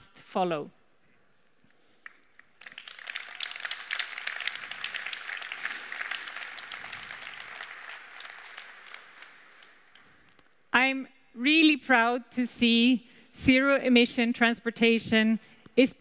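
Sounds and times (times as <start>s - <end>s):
audience applauding: 2.0s - 10.3s.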